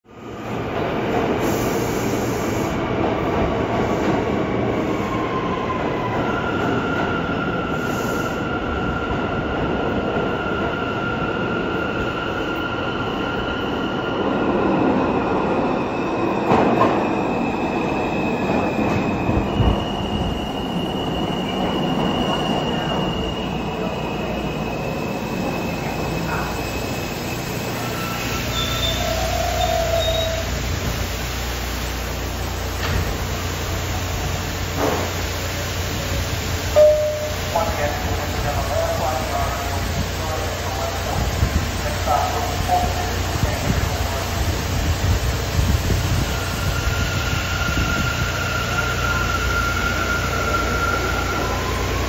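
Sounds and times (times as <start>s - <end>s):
train wheels rumbling on rail: 0.2s - 52.0s
high squealing of train wheels: 3.6s - 31.2s, 31.9s - 52.0s
train clanks: 34.3s - 35.3s, 36.7s - 39.5s.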